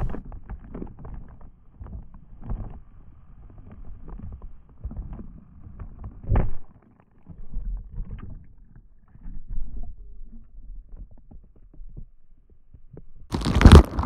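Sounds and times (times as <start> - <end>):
muffled underwater rumbling and knocks: 0.0 - 1.3
wind and handling rumble: 0.0 - 6.7.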